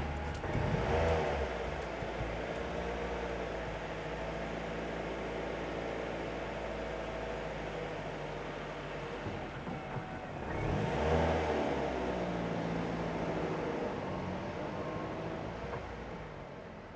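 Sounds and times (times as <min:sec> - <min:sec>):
car engine revving: 0:00.0 - 0:03.2, 0:10.4 - 0:13.3.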